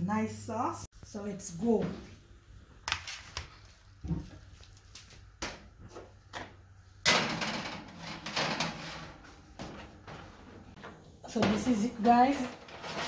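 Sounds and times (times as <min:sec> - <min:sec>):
pan scraping on oven rack: 0:07.1 - 0:13.0.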